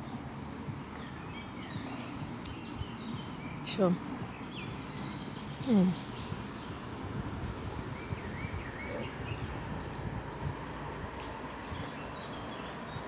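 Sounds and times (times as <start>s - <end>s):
faint bird chirps: 0.0s - 10.1s
low outdoor rumble: 0.0s - 13.0s.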